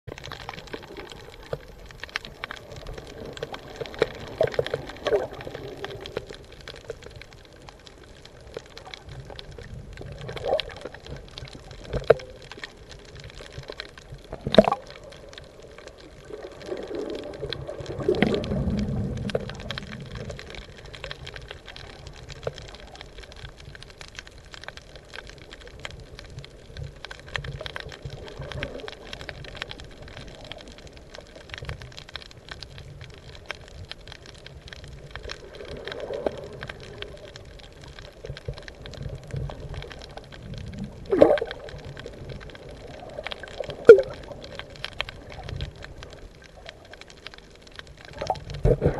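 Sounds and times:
water surging: 0.1 - 24.0, 34.6 - 48.9
underwater sloshing and bubbling: 0.1 - 48.9.

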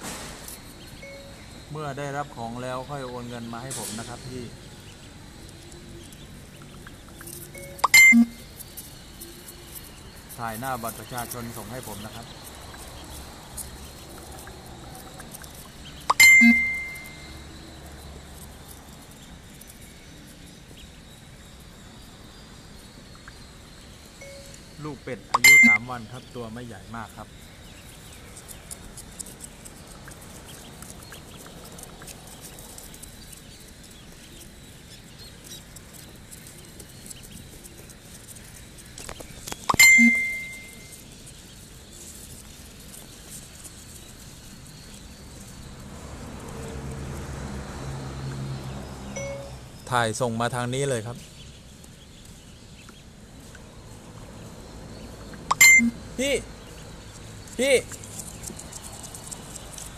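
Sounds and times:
ducklings peeping: 0.6 - 47.5, 48.5 - 59.9
metallic clink ringing: 16.1 - 17.3, 25.4 - 25.8, 39.7 - 40.9, 49.2 - 49.6, 55.5 - 56.0.

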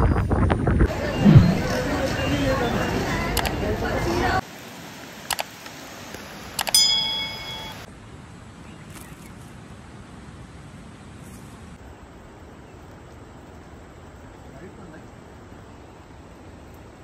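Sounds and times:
faint outdoor hiss: 3.6 - 17.0
notification bell ding: 6.7 - 7.9.

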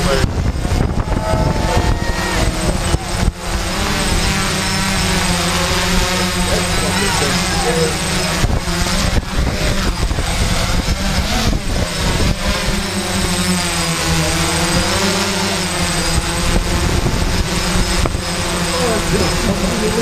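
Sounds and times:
drone motors and propellers whirring: 0.0 - 20.0.

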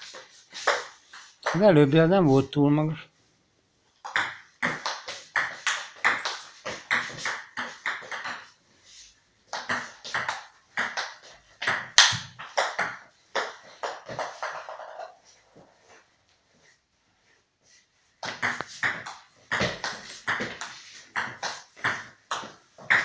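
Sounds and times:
ping pong ball clicking off paddles: 4.0 - 8.5, 9.5 - 15.2, 18.2 - 23.0.

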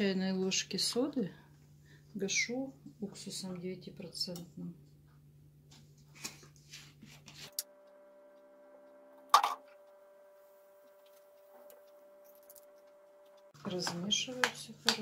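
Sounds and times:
steady hum: 7.3 - 14.9.

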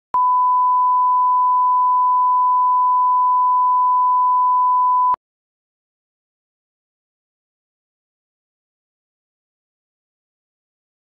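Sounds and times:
steady pure test tone beep: 0.2 - 5.2.

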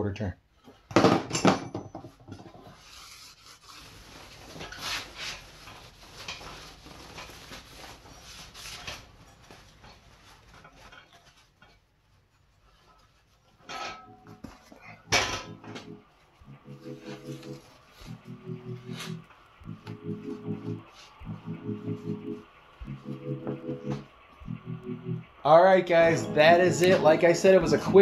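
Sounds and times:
cloth rag rubbing on wheel: 2.7 - 11.5.

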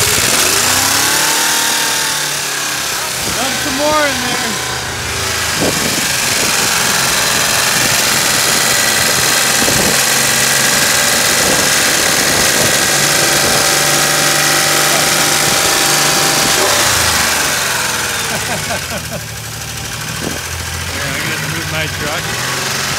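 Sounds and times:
pickup engine running hard: 0.0 - 22.9.

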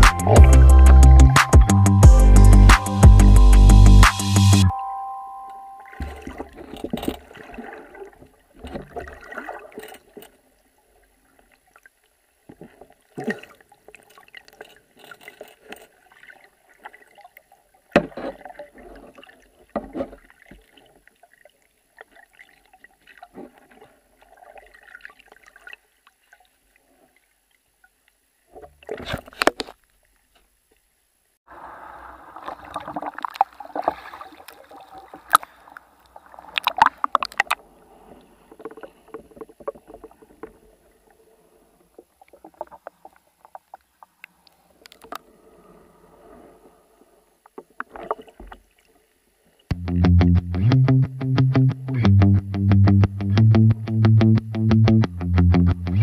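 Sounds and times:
water gurgling and sloshing: 5.8 - 49.7.

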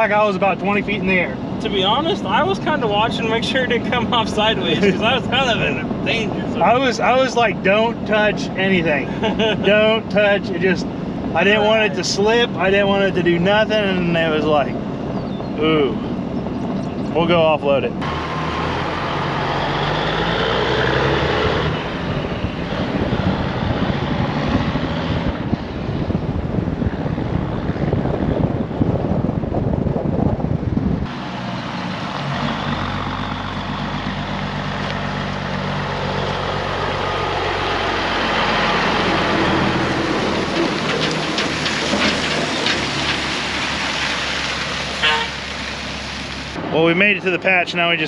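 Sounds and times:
road and wind noise: 0.0 - 48.0
diesel truck engine running: 29.2 - 46.9
tyres crackling on gravel: 31.1 - 46.6.

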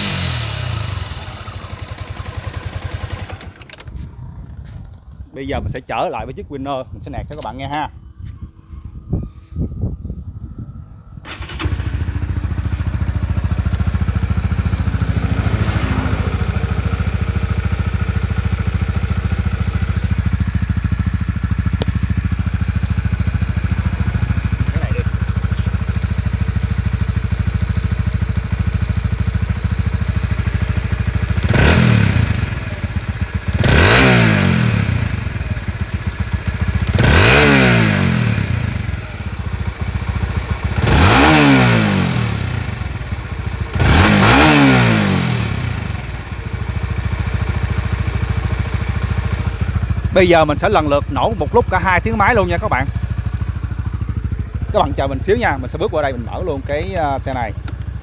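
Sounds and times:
engine revving: 0.0 - 3.8, 11.3 - 53.4
motorcycle engine idling: 0.0 - 58.0.

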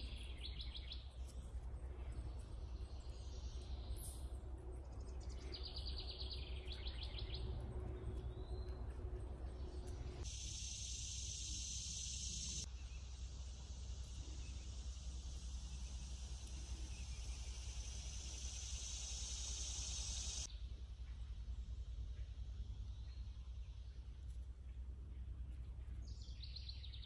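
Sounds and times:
low background rumble: 0.0 - 27.0
high-pitched insect buzzing: 15.4 - 20.5.

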